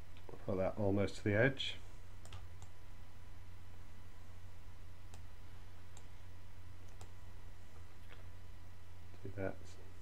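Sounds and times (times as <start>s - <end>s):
steady low hum: 0.0s - 10.0s
computer mouse clicking: 2.2s - 2.8s, 5.9s - 6.1s, 6.9s - 7.2s.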